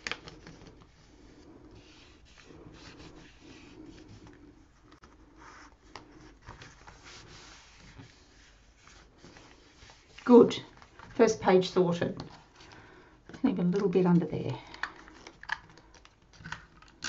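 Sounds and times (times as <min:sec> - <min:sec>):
hand rubbing paper: 0:00.0 - 0:11.6.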